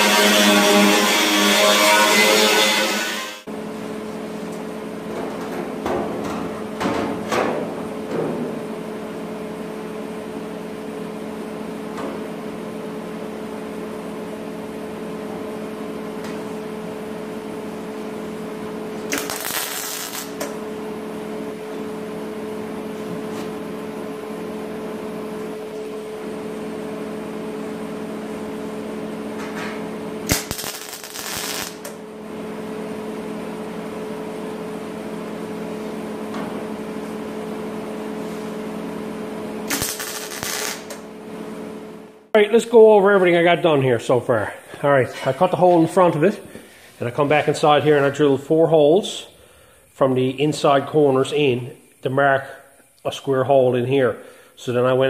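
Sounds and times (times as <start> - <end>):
workshop hum: 0.0 - 55.0
welding hissing crackle: 19.0 - 20.7, 30.2 - 32.1, 39.6 - 41.1.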